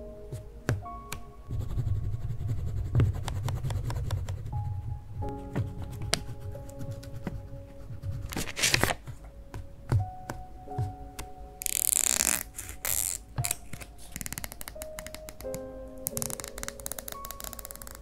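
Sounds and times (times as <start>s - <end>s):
soft background music: 0.0s - 18.0s
paper sticker rustling: 5.7s - 9.3s, 11.6s - 18.0s
scissors snipping paper: 8.2s - 9.1s, 16.1s - 18.0s.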